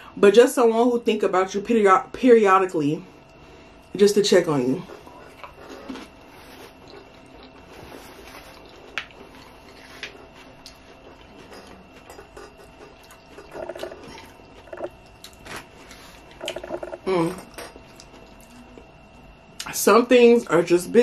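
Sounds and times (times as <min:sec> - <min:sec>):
chewing crunchy chips: 0:05.0 - 0:17.1.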